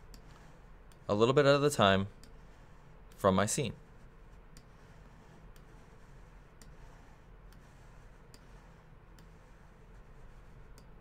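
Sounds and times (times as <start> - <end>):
computer mouse clicks: 0.1 - 1.1, 8.3 - 8.6, 9.2 - 9.4, 10.7 - 11.0.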